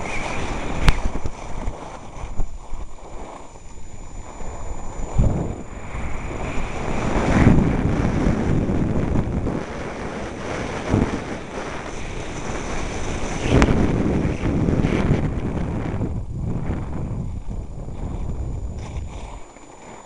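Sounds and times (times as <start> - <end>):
skis hissing on snow: 0.0 - 3.5
wind buffeting microphone: 0.0 - 20.0
sharp click: 0.8 - 1.3.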